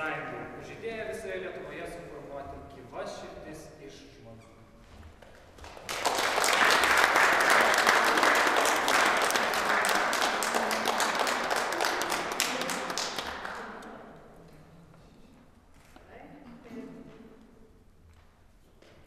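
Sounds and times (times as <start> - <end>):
audience applauding: 5.6 - 13.9.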